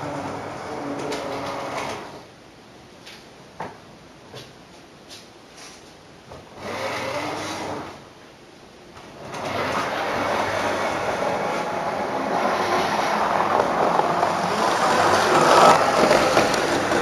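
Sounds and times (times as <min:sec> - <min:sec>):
model train rumbling on track: 0:09.2 - 0:17.0.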